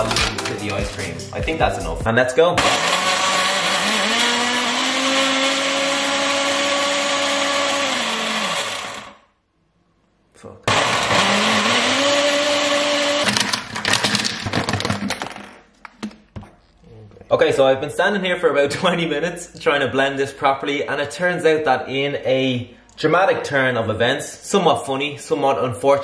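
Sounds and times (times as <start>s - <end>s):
knocks and rattles: 0.0s - 1.0s, 13.3s - 16.5s
blender motor whining: 2.6s - 9.3s, 10.7s - 14.3s.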